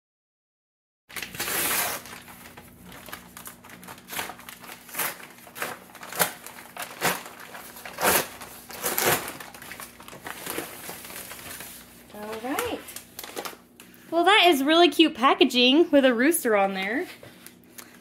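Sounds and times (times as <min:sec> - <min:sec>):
stiff paper crinkling: 0:01.1 - 0:14.0.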